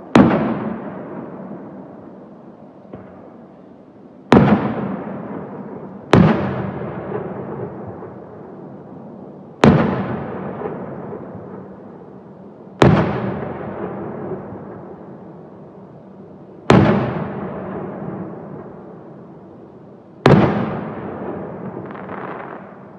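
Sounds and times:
firework shells booming: 0:04.3 - 0:08.2, 0:12.8 - 0:14.8, 0:16.7 - 0:17.8, 0:20.2 - 0:22.9.

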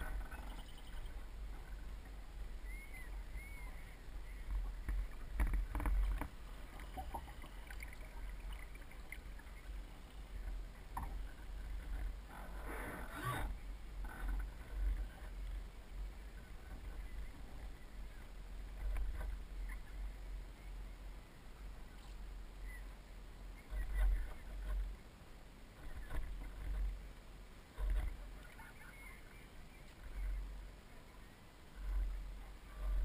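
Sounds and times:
wind rumble on microphone: 0:00.0 - 0:33.0
water splashing against boat hull: 0:04.5 - 0:13.5.

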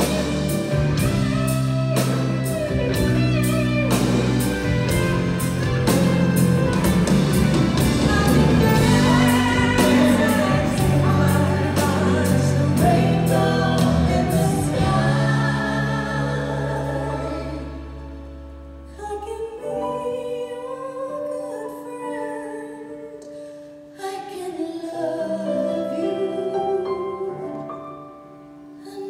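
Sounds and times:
live pop ballad with band: 0:00.0 - 0:27.8
woman singing: 0:07.8 - 0:18.0, 0:18.9 - 0:23.2, 0:24.0 - 0:27.7.

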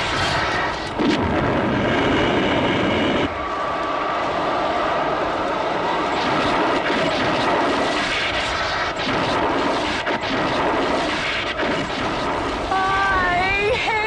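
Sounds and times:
electrical rushing noise: 0:00.0 - 0:03.4, 0:05.9 - 0:14.0
sparks crackling: 0:06.1 - 0:14.0.

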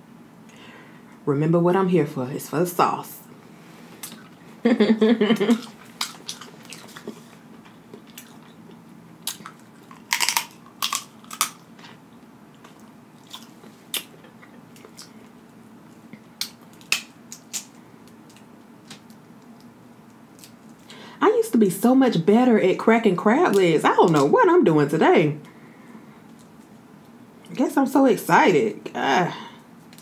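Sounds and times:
chewing with wet mouth smacks: 0:05.5 - 0:11.7, 0:12.6 - 0:15.3
crab shell cracking: 0:09.2 - 0:11.7, 0:16.4 - 0:19.7.

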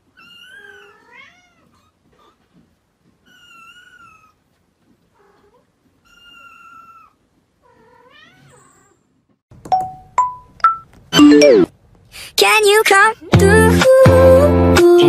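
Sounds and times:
ringing plinks sound effect: 0:09.7 - 0:11.7.

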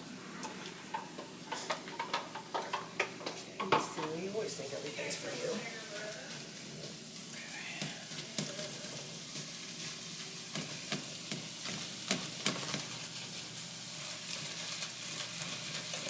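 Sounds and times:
meat sizzling in a skillet: 0:00.0 - 0:16.0
spatula tapping and scraping pan: 0:00.9 - 0:04.2, 0:10.5 - 0:13.0.

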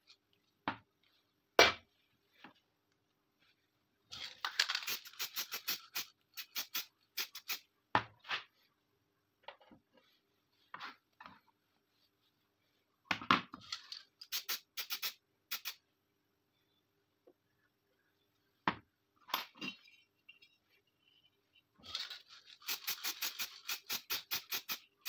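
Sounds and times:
metal parts clicking and scraping: 0:04.1 - 0:07.6, 0:21.8 - 0:24.9.

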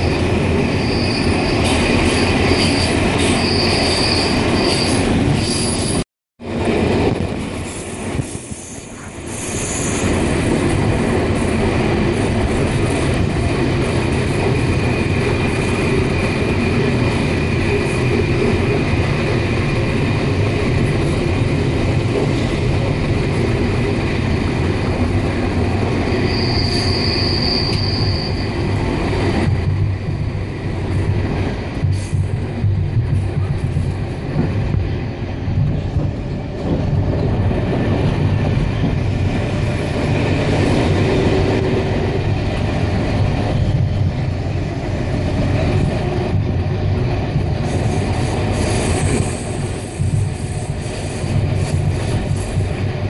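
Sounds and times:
train wheels rumbling on track: 0:00.0 - 0:53.0
high wheel squeal: 0:00.7 - 0:06.0, 0:26.1 - 0:28.6.

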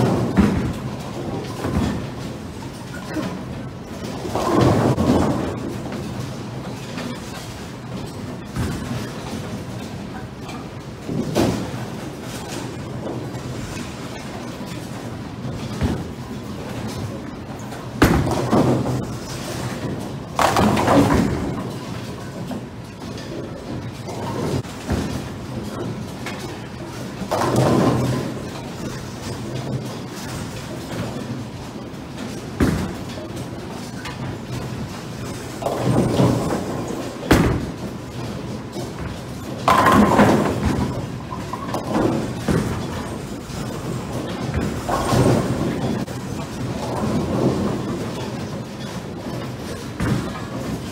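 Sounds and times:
bowling pins crashing: 0:00.0 - 0:10.0, 0:11.0 - 0:31.2, 0:32.2 - 0:50.9
bowling ball rolling: 0:32.2 - 0:50.9.

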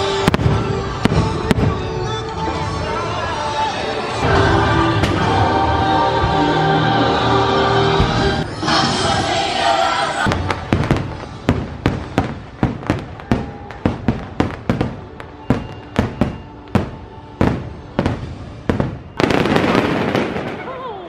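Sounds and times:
fireworks bangs: 0:00.0 - 0:03.0, 0:04.2 - 0:06.4, 0:10.2 - 0:21.0
music playing: 0:00.0 - 0:20.6.

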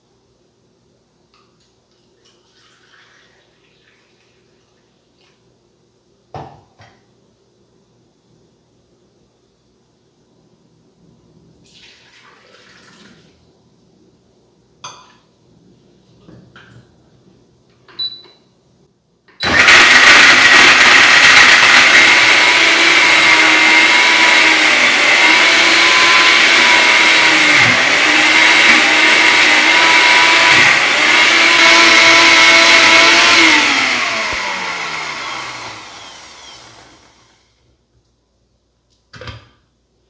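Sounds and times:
blender motor whining: 0:19.4 - 0:37.6
blender spinning down: 0:19.4 - 0:37.6.

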